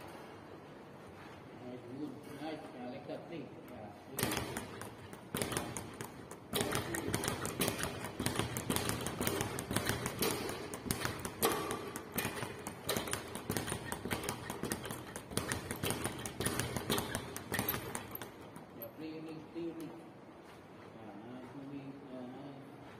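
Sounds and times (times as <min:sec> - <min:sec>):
speed bag rattling: 0:04.2 - 0:19.0.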